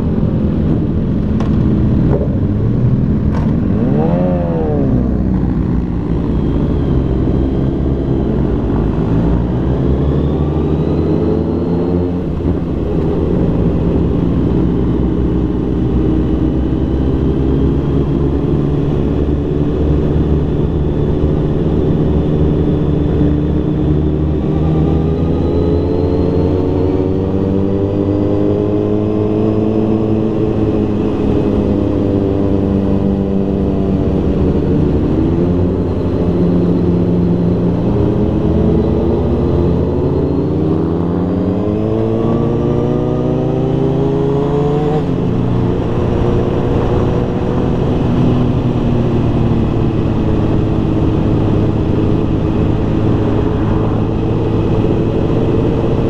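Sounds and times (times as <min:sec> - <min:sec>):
low drone: 0:00.0 - 0:56.0
vehicle engine accelerating: 0:00.0 - 0:56.0.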